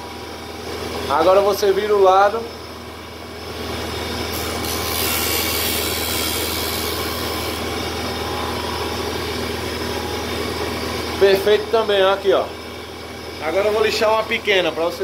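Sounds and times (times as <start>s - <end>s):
electric motor humming: 3.4s - 15.0s
wood rasping on sanding disc: 4.4s - 7.7s.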